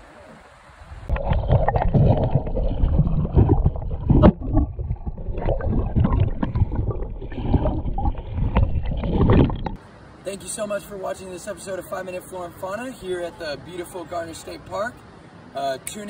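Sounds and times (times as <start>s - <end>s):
underwater knocks and clicks: 1.1s - 9.8s
water gurgling underwater: 1.1s - 9.8s.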